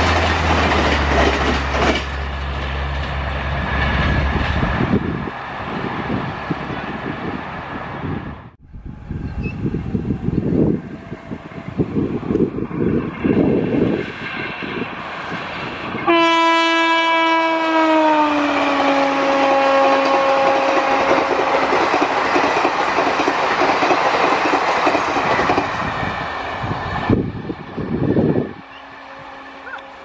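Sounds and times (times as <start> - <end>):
train coaches clattering over rails: 0.0 - 5.0, 19.9 - 26.2
locomotive horn blast: 16.0 - 21.7, 28.6 - 30.0.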